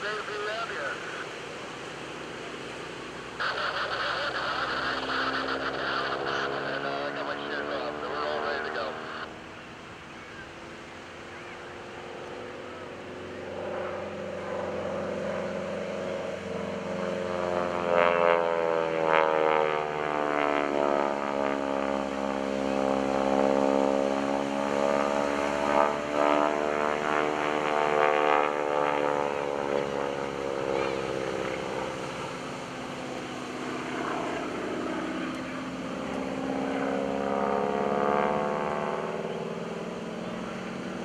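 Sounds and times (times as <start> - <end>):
propeller plane radial engine: 0.0 - 41.0.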